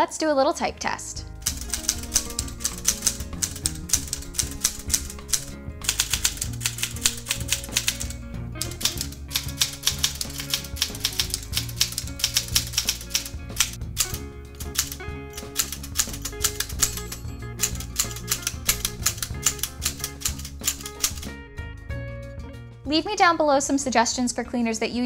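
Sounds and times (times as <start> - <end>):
background music: 0.0 - 25.0
manual typewriter keys clacking: 1.4 - 21.3.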